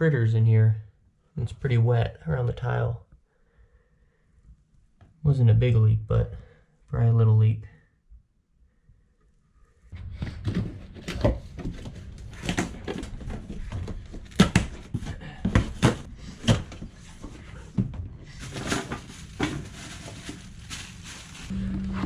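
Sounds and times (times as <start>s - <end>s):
cardboard scraping: 9.9s - 22.0s
knocks and thumps: 10.0s - 19.8s
cardboard rustling: 10.0s - 21.6s.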